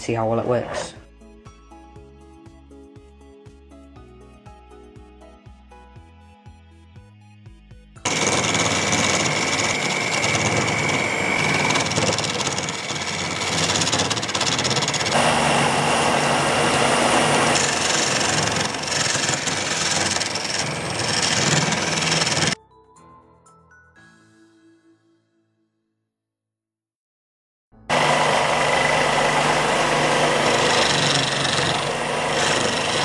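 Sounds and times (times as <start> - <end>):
soft background music: 0.0 - 8.0, 22.6 - 25.8
chisel cutting wood on lathe: 8.1 - 22.6, 27.9 - 33.0
drill motor whining: 8.1 - 22.6, 27.9 - 33.0.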